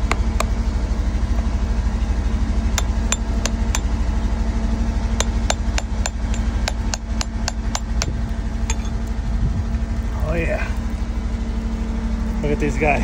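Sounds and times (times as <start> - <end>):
low engine hum: 0.0 - 13.0
hammer striking steel chisel: 2.8 - 3.9, 5.2 - 8.9.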